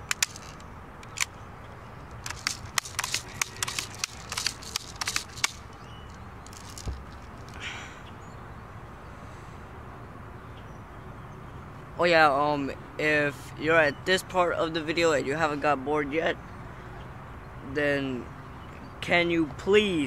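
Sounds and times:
bb gun clicks: 0.0 - 1.4, 2.1 - 5.8, 6.5 - 7.6
dull thump: 6.8 - 7.2.

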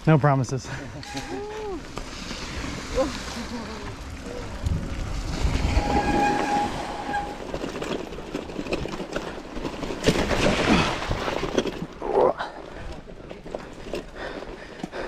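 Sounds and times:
bike rattling: 0.7 - 15.0
bike tyre rumble: 0.9 - 15.0
wind noise: 4.0 - 9.0
steady whistling tone: 5.6 - 7.5
bike knocks and jolts on concrete: 7.4 - 12.0.

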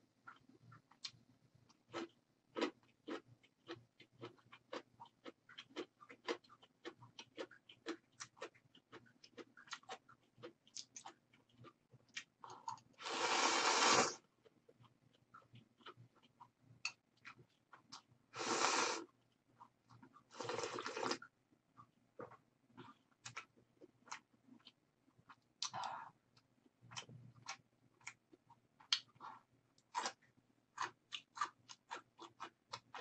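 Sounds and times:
chewing and mouth clicks: 0.2 - 13.1, 14.2 - 18.2, 19.0 - 33.0
loud noodle slurps: 13.0 - 14.2, 18.4 - 19.1.

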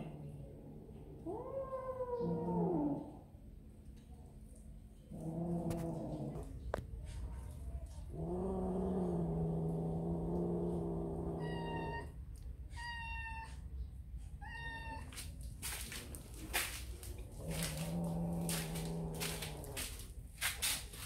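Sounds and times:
cat yowling: 11.3 - 12.2
cat meowing: 11.3 - 13.6, 14.4 - 15.1.

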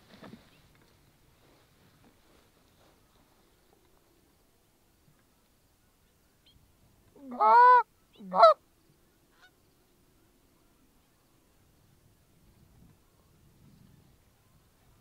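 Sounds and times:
goose honks: 7.3 - 8.6.

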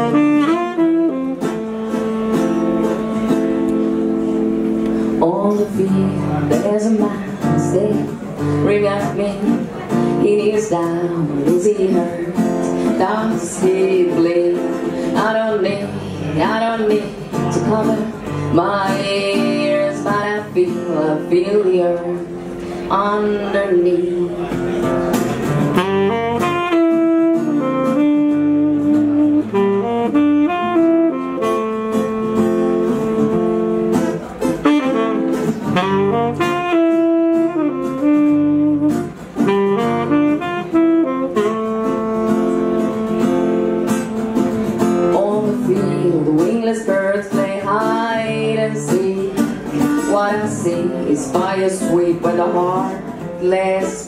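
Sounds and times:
saxophone melody: 0.0 - 5.2, 24.2 - 48.8
acoustic guitar accompaniment: 0.0 - 54.0.

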